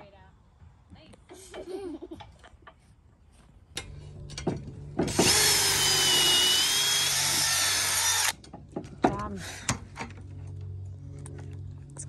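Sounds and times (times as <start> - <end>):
power drill whining into wood: 5.1 - 8.4.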